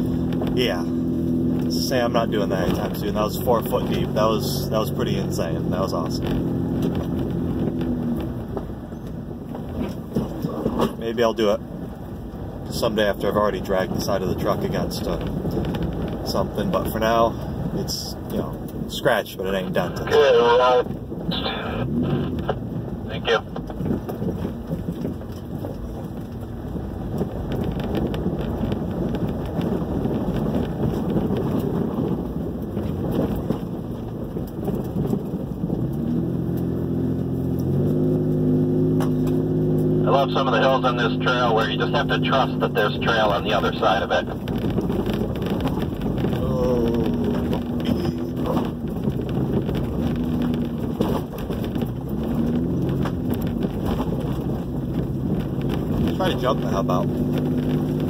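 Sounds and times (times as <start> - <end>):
engine and tyres rumbling: 0.0 - 58.0
truck body rattling and knocking: 44.3 - 56.1.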